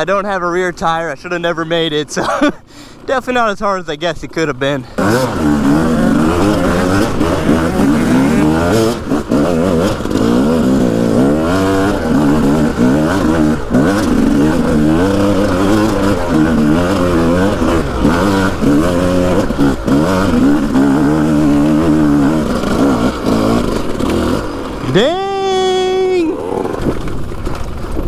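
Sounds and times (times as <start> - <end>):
dirt bike engine revving: 4.2 - 27.6.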